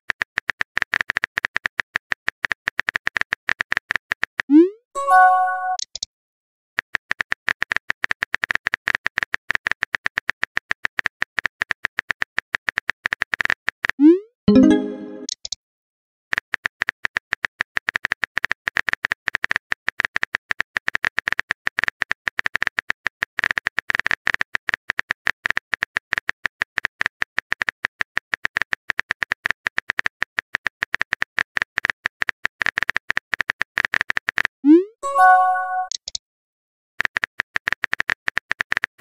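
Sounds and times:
keyboard typing clicks: 4.5 - 6.1, 14.5 - 15.6, 35.2 - 36.2.

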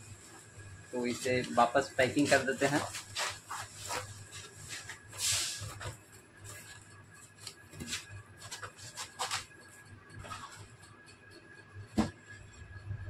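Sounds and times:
cardboard rustling and knocks: 11.9 - 12.2.

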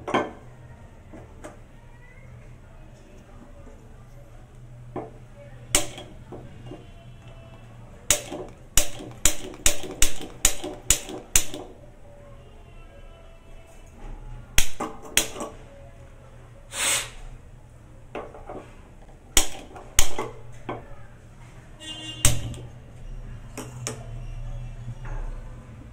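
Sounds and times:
gas burner hissing: 16.7 - 17.4.

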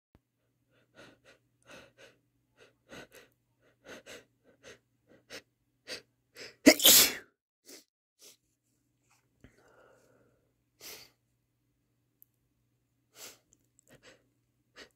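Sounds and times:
person sneezing: 6.6 - 7.3.

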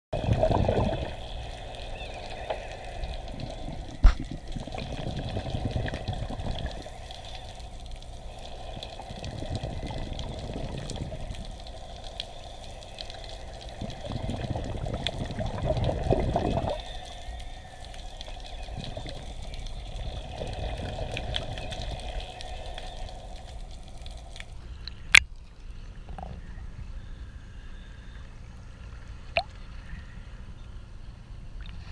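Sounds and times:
diver's bubbles rushing underwater: 0.2 - 24.4.

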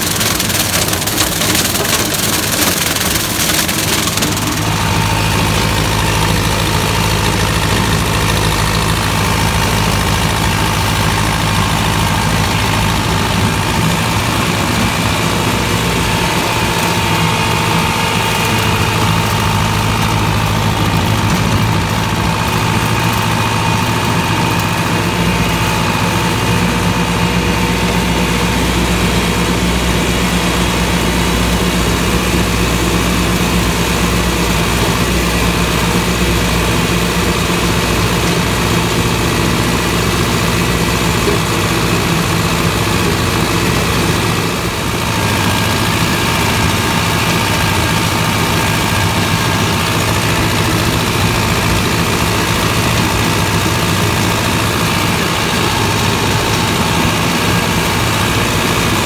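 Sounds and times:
steady whine: 0.0 - 59.0
tractor engine running: 0.0 - 59.0.

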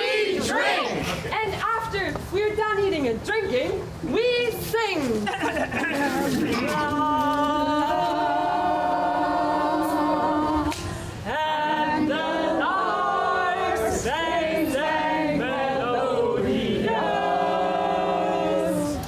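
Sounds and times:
group of voices singing: 0.0 - 1.1, 6.2 - 19.0.

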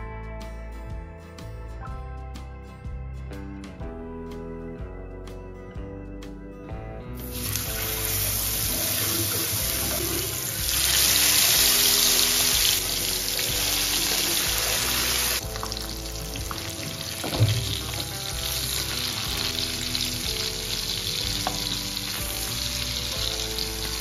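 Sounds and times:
fish sizzling in hot oil: 7.2 - 24.0.

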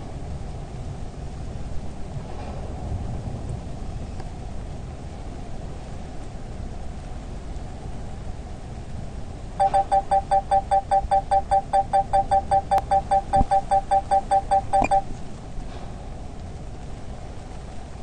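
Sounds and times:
rapid electronic beeping: 9.6 - 15.1.

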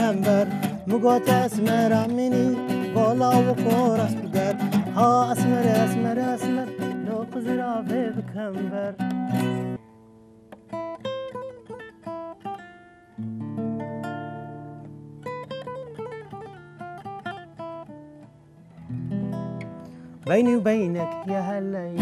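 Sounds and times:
acoustic guitar plucking notes: 0.0 - 22.0.

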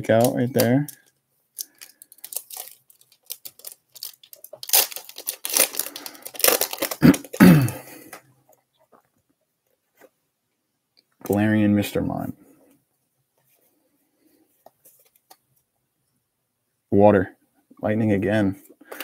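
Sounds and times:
foil wrapper crinkling and tearing: 0.0 - 7.8.

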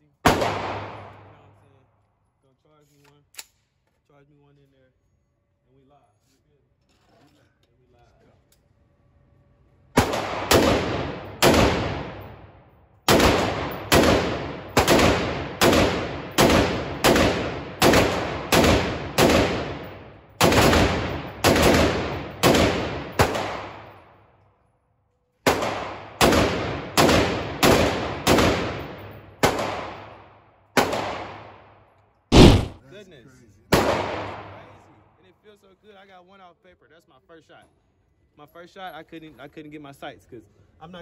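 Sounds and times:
rifle shots: 0.3 - 1.4, 10.0 - 12.5, 13.1 - 24.0, 25.5 - 31.6, 32.3 - 32.8, 33.7 - 34.7.

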